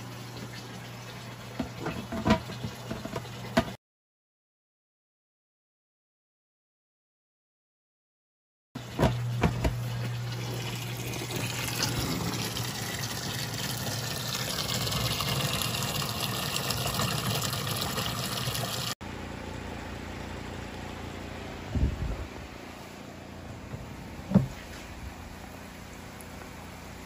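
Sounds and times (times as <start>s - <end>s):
low pump hum: 8.8s - 27.0s.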